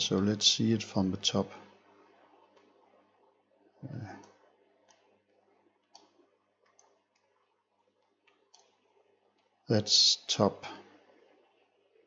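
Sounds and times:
computer mouse clicking: 0:02.5 - 0:03.0, 0:04.0 - 0:05.1, 0:05.8 - 0:09.6.

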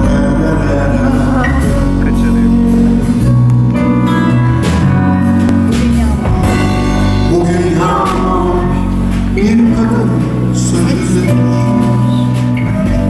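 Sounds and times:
man singing: 0:00.0 - 0:03.4, 0:06.9 - 0:13.0
acoustic guitar: 0:00.0 - 0:13.0
sustained low bass notes: 0:00.0 - 0:13.0.

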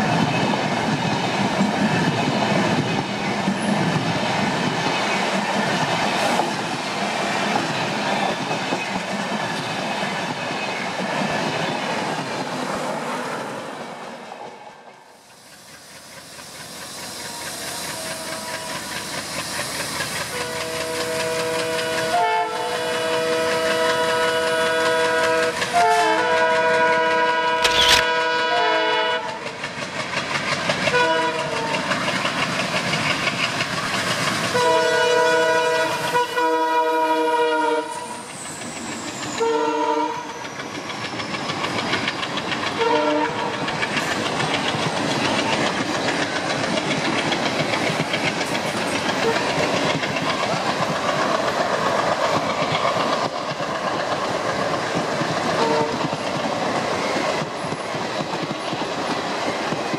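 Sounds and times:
train coaches rolling past: 0:00.0 - 0:59.9
locomotive horn blasts: 0:18.0 - 0:18.8, 0:20.4 - 0:29.4, 0:30.9 - 0:31.8, 0:34.6 - 0:38.0, 0:39.4 - 0:40.3, 0:42.8 - 0:43.5, 0:55.6 - 0:56.0
wheel clatter over rail joints: 0:40.4 - 0:59.9.

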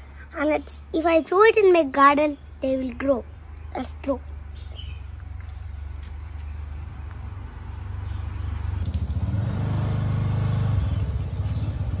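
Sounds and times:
vehicle engine passing: 0:06.4 - 0:12.0.

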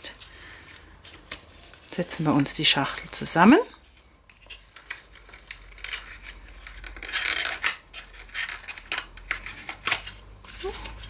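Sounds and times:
cardstock rustling and crackling: 0:00.1 - 0:11.0.

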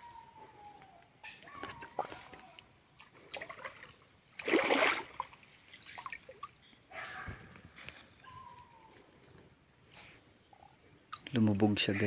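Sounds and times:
shallow water splashing and trickling: 0:01.6 - 0:06.8.

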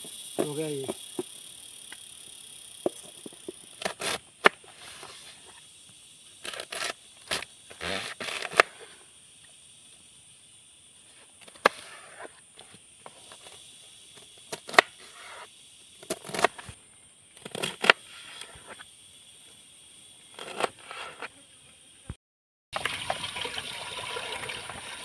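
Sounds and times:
knife slicing cabbage: 0:16.1 - 0:16.6.

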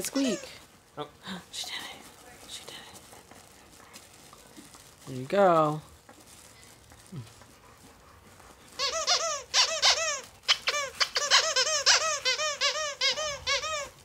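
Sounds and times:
dog toy squeaking: 0:00.0 - 0:00.6, 0:08.7 - 0:14.0.

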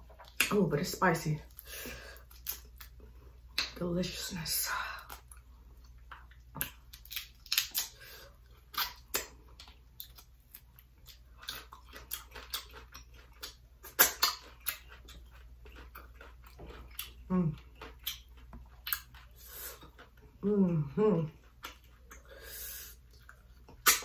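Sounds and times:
wet chewing and lip smacks: 0:01.5 - 0:03.8, 0:05.0 - 0:20.4.

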